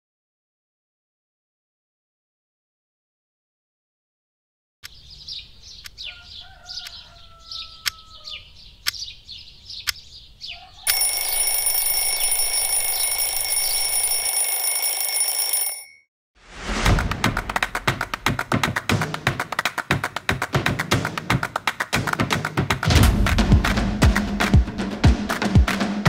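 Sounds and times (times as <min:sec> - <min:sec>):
birds chirping: 0:04.8 - 0:11.0
alarm clock ticking: 0:10.9 - 0:16.0
alarm clock bells ringing: 0:10.9 - 0:16.1.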